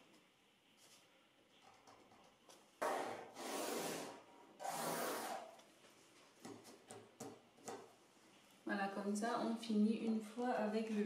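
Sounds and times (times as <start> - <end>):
ruler rubbing across paper: 2.8 - 5.5.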